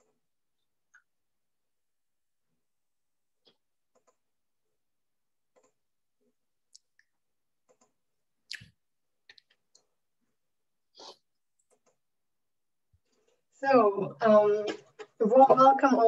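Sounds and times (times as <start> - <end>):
mouse and keyboard clicks: 3.9 - 4.2, 5.5 - 5.8, 7.6 - 8.0, 11.6 - 12.0.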